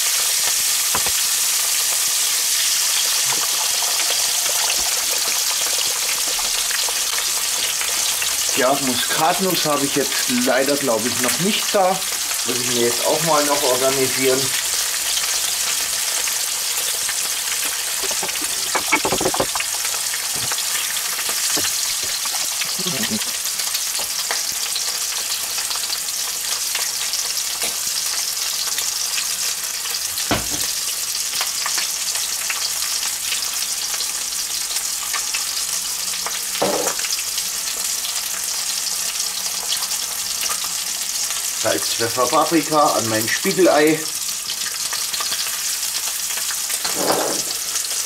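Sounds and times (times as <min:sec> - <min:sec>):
meat and egg sizzling in pan: 0:00.0 - 0:48.0
utensils knocking on pots: 0:17.6 - 0:19.7, 0:36.6 - 0:37.0.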